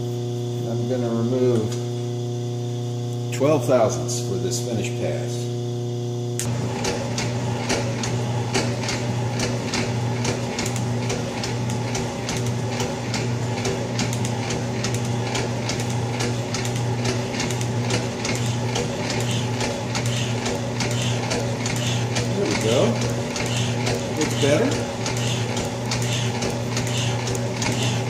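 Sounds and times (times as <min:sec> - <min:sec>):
metal shaper motor hum: 0:00.0 - 0:28.0
sharp rhythmic clicks of shaper: 0:06.4 - 0:28.0.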